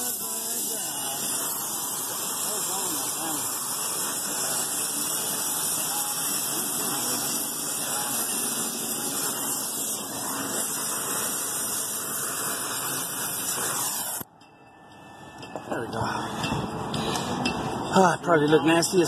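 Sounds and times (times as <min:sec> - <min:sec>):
torch flame hissing: 0:00.0 - 0:14.3.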